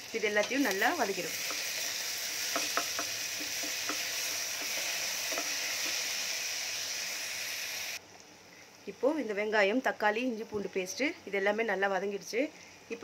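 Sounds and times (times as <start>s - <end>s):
vegetables sizzling in hot oil: 0.0s - 8.4s
spatula tapping a pot: 2.4s - 6.0s.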